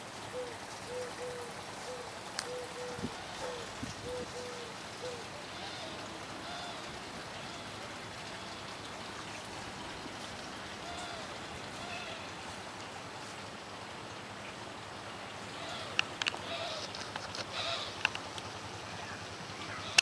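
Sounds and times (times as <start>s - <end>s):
steady outdoor hiss: 0.0s - 20.0s
dove cooing: 0.2s - 8.6s, 10.8s - 12.3s, 15.5s - 18.2s
faint short bird calls: 15.5s - 18.0s.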